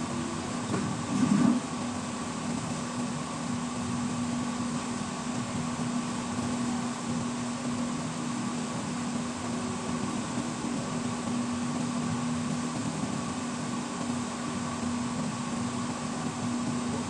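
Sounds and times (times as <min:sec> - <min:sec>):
mechanical hum: 0:00.0 - 0:17.0.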